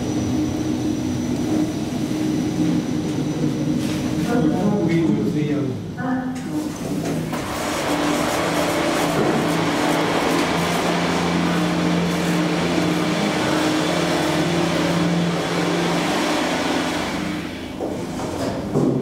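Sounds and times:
elevator motor hum: 6.7s - 19.0s.

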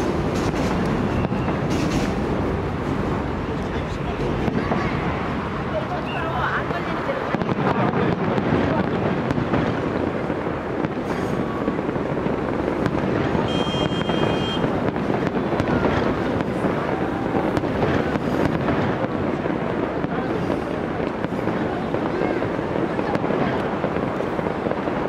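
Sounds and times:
fireworks booms and crackles: 0.0s - 25.0s
high firework whistle: 0.4s - 2.2s, 13.4s - 14.8s.

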